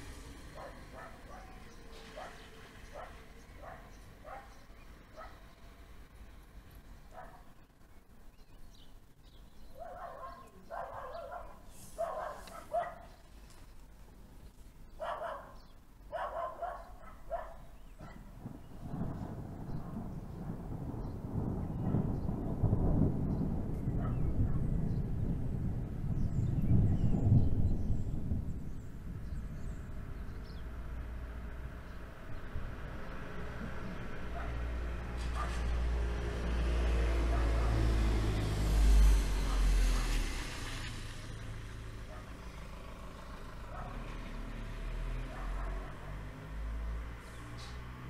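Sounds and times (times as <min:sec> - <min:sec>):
dog barking: 0:00.6 - 0:05.4, 0:07.1 - 0:07.5, 0:09.8 - 0:13.2, 0:15.0 - 0:18.3, 0:24.0 - 0:24.6, 0:34.3 - 0:34.6, 0:35.3 - 0:35.7, 0:37.3 - 0:37.8, 0:42.1 - 0:42.4, 0:43.7 - 0:44.0, 0:45.3 - 0:46.0
rolling thunder: 0:18.2 - 0:39.4.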